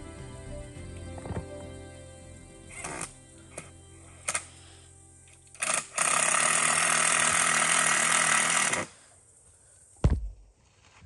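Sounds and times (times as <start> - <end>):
power drill drilling into wood: 5.6 - 8.9
sharp thump: 10.0 - 10.4.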